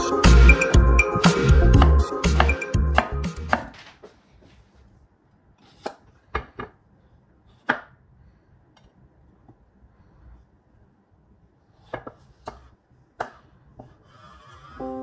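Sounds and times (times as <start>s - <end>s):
background music: 0.0s - 3.7s, 14.8s - 15.0s
knife chopping on wooden board: 1.8s - 3.7s, 11.9s - 14.0s
knife cutting cucumber: 1.8s - 3.8s, 5.6s - 6.2s, 11.8s - 14.6s.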